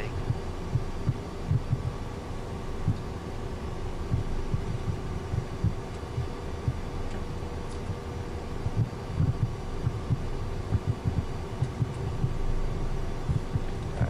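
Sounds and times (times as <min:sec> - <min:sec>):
engine and avionics hum: 0:00.0 - 0:14.0
soft low thumps: 0:00.2 - 0:02.0, 0:04.0 - 0:06.9, 0:08.6 - 0:12.5, 0:13.2 - 0:14.0.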